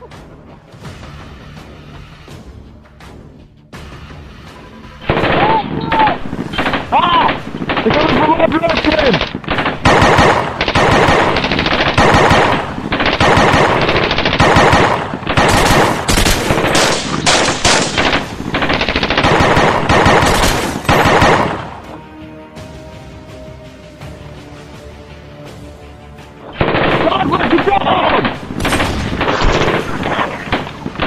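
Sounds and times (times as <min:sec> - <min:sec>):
automatic gunfire bursts: 0:05.0 - 0:05.5, 0:06.1 - 0:21.7, 0:26.6 - 0:31.0.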